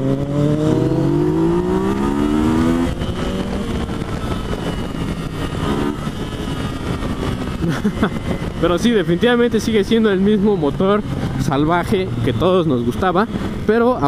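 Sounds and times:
motorcycle engine accelerating: 0.0s - 8.6s
wind noise: 0.0s - 14.0s.

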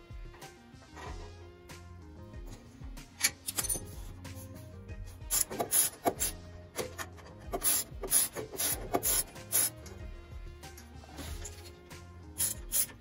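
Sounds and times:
background music: 0.0s - 13.0s
spanner scraping on bolt: 3.1s - 4.4s.

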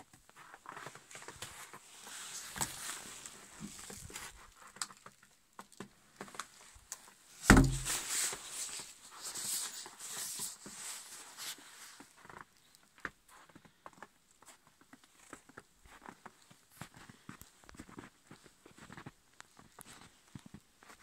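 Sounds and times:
heavy thump: 7.5s - 8.1s.

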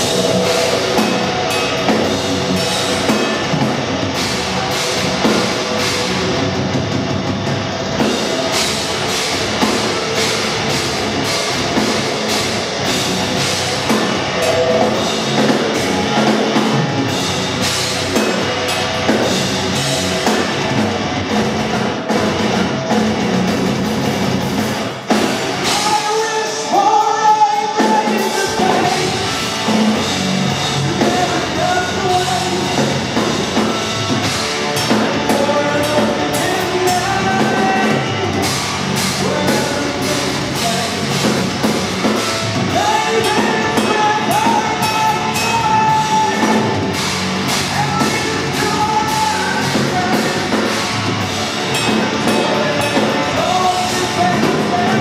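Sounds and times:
bass guitar: 0.0s - 55.0s
distorted electric guitars: 0.0s - 55.0s
drum kit: 0.0s - 55.0s
person singing: 25.6s - 30.0s, 30.7s - 33.2s, 34.8s - 41.4s, 42.7s - 55.0s.

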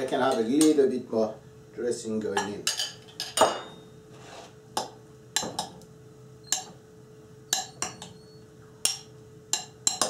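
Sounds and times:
metal spoon clinking glass bowl: 8.8s - 10.0s.

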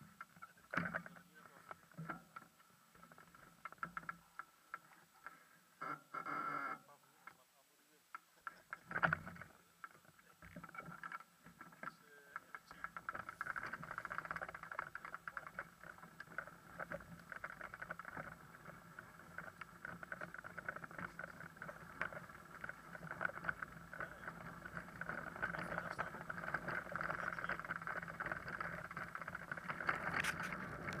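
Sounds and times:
bicycle rattling on cobblestones: 12.7s - 31.0s.

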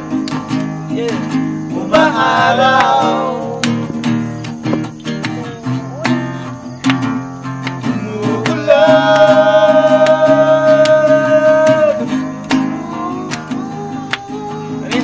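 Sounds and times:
acoustic guitar strumming: 0.0s - 15.0s
man singing: 0.9s - 3.6s, 7.8s - 15.0s.

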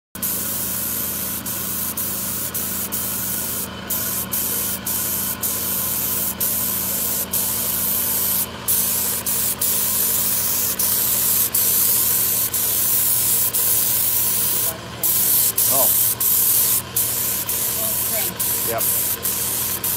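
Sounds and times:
paint spray gun hissing: 0.2s - 19.9s
steady low hum: 0.3s - 19.9s.

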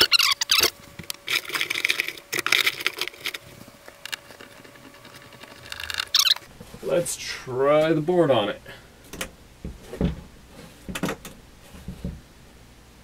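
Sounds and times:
scraping and rustling: 0.0s - 8.0s, 9.6s - 12.2s
sharp clicks and knocks: 10.8s - 12.2s.

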